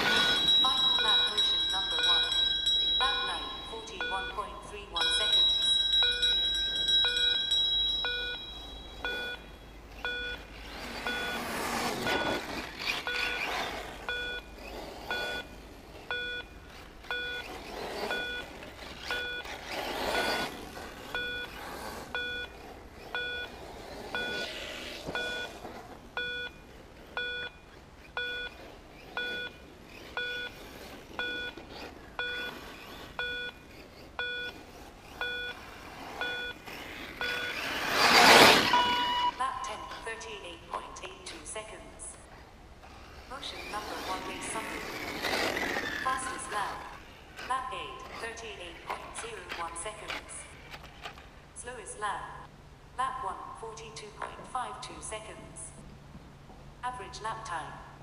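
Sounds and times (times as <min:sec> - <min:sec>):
electronic timing beep: 0:00.0 - 0:25.6, 0:26.2 - 0:40.0
rc buggy passing: 0:00.0 - 0:51.5.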